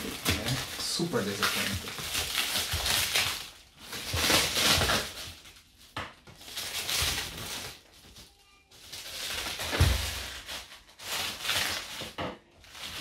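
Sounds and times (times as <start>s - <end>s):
plastic wrap crinkling and tearing: 0.0s - 13.0s.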